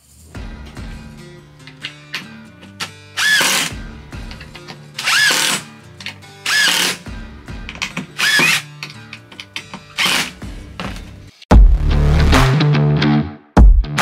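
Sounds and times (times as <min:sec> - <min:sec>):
cordless drill driving screws: 0:03.2 - 0:03.7, 0:05.0 - 0:05.6, 0:06.5 - 0:07.0, 0:08.2 - 0:08.7, 0:10.0 - 0:10.3.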